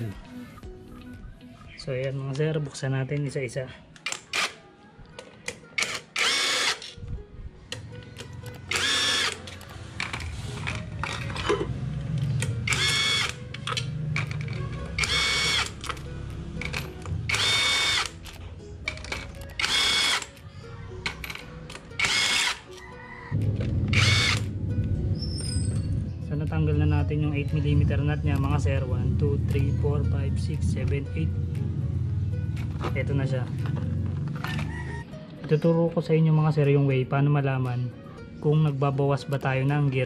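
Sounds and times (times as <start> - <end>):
cordless drill whining: 5.8 - 6.9, 8.7 - 9.4, 12.7 - 13.4, 15.0 - 15.8, 17.3 - 18.1, 19.6 - 20.3, 22.0 - 22.6, 23.9 - 24.4.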